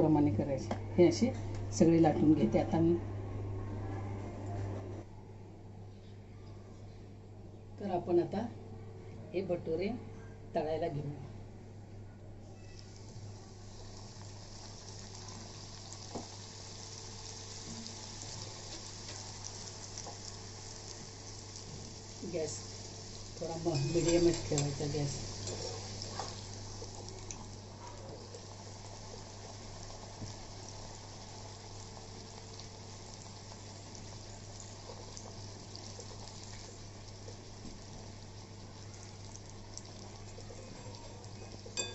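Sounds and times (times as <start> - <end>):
low steady hum: 0.0 - 41.9
dough sizzling in hot oil: 12.7 - 41.9.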